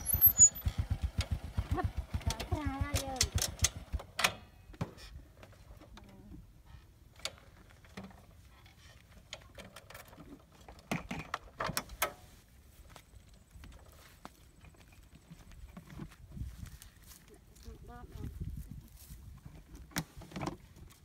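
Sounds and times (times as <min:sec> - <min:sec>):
motorbike clicks and knocks: 0:00.6 - 0:04.5.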